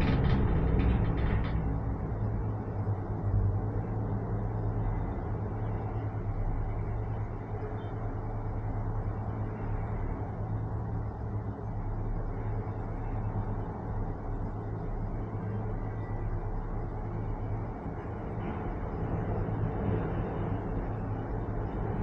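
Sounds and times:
rapid mechanical clatter: 0.0s - 3.0s
gondola low rumble and hum: 0.0s - 22.0s.

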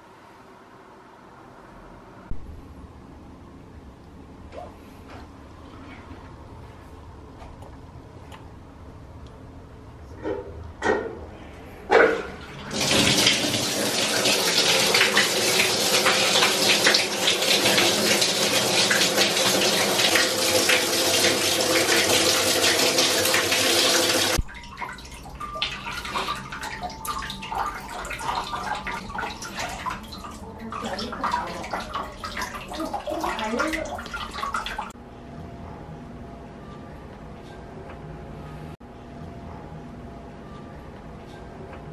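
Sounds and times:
uneven water sounds: 11.9s - 35.0s
water gushing into tub: 12.5s - 35.0s.

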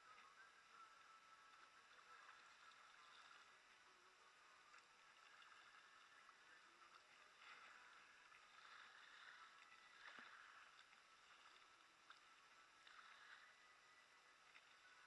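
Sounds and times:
paddle strokes through water: 0.0s - 15.0s.

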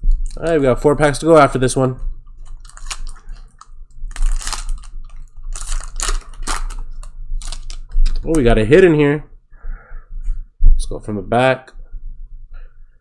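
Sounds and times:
foil wrapper crinkling: 1.3s - 8.5s.

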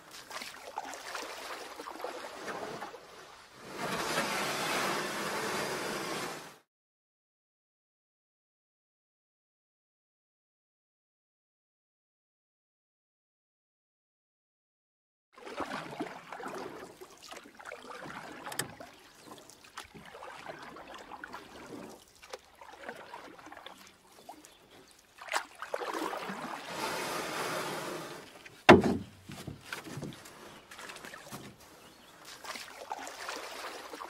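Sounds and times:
kayak paddle splashing water: 0.0s - 6.4s, 15.4s - 34.0s.

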